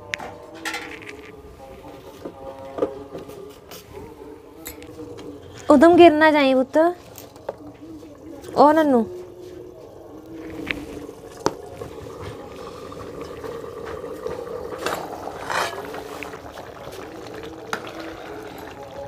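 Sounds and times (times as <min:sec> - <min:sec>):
curry bubbling in a pot: 0:07.6 - 0:19.0.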